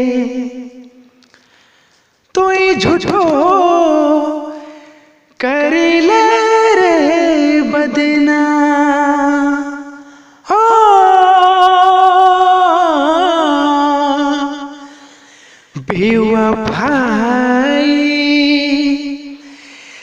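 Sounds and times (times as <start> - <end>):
person singing: 2.3 - 4.6, 5.4 - 14.9, 15.8 - 19.6.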